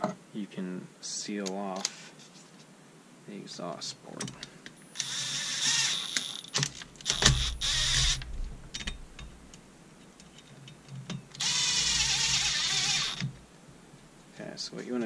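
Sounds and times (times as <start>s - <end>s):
impact driver running: 7.1s - 8.3s, 11.4s - 13.3s.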